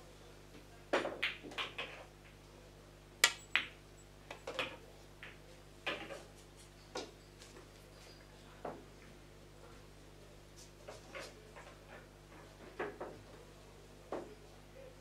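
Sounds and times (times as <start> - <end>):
pool balls clacking: 0.9 - 2.1, 3.2 - 6.3.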